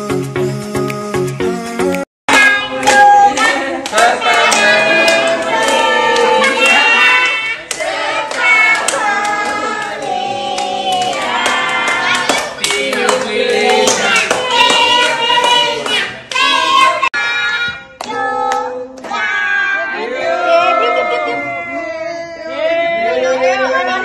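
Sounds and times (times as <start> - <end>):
music with singing: 0.0 - 5.0
hands clapping: 1.9 - 16.6.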